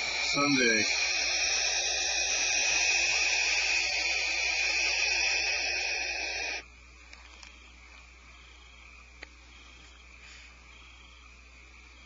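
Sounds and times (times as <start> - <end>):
owl hissing: 0.0 - 6.6.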